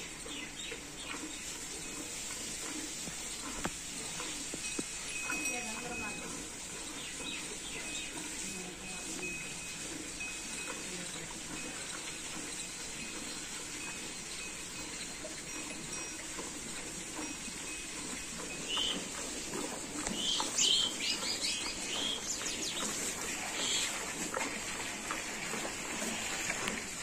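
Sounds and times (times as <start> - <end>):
birds chirping: 0.0 - 2.2, 6.8 - 12.2, 18.5 - 24.0.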